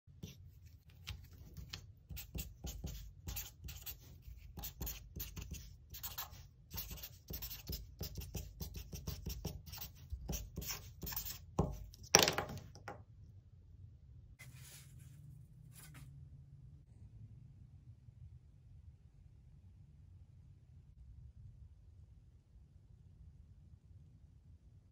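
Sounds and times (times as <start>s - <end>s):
marker writing on paper: 0.2s - 12.6s.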